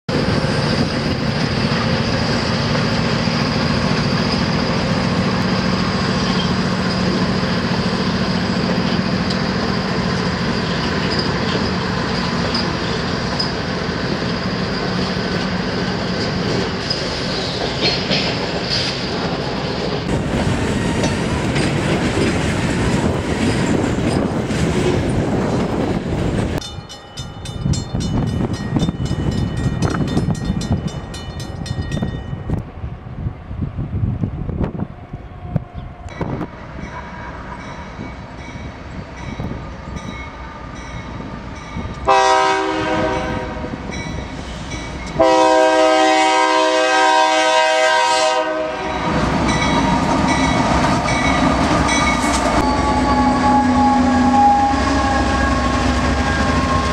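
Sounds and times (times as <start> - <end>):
locomotive engines humming: 0.1 - 56.9
train wheels clicking over rail joints: 0.2 - 26.9, 49.1 - 53.2
crossing bell ringing: 8.6 - 13.9, 26.6 - 32.6, 36.1 - 45.8, 48.8 - 56.9.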